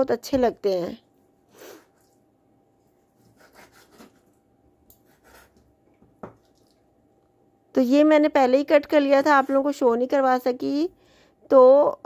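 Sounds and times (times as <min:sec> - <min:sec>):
knife scraping through meat: 0:03.0 - 0:04.4, 0:05.0 - 0:05.7
knife knocking on cutting board: 0:06.1 - 0:06.4.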